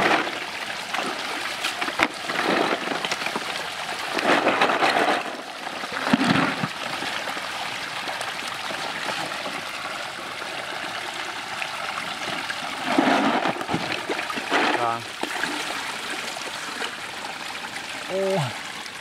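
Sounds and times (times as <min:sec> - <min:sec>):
stream water running and splashing: 0:00.0 - 0:19.0.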